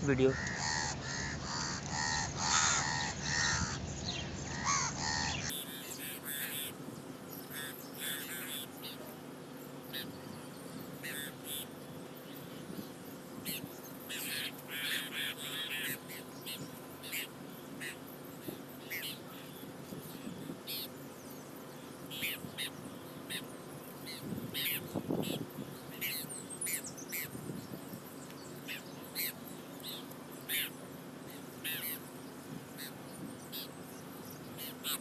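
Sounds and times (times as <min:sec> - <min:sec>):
crows cawing: 0:00.1 - 0:06.7, 0:07.5 - 0:08.6, 0:14.1 - 0:16.2.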